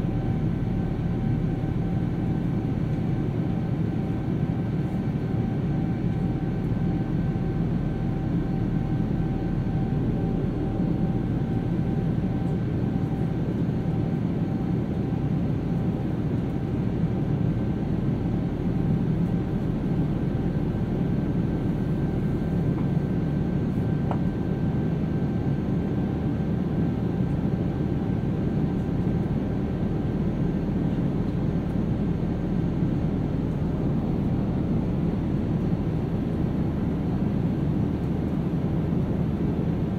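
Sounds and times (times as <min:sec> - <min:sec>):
airplane cabin roar: 0:00.0 - 0:39.9.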